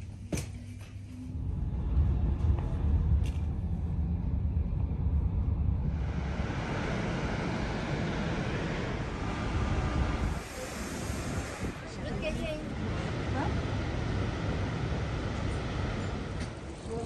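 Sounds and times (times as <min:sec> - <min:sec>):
train rumbling from inside: 0:00.0 - 0:17.0.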